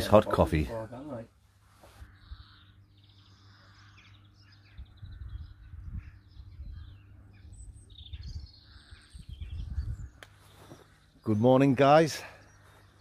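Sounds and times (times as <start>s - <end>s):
small birds chirping: 0.0s - 13.0s
wind rumbling on microphone: 4.6s - 10.8s.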